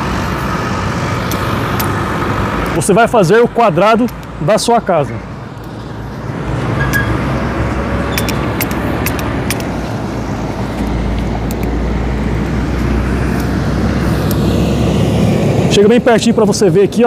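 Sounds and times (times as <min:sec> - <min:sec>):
road traffic rumble: 0:00.0 - 0:17.0
tape measure clicks: 0:08.1 - 0:10.0.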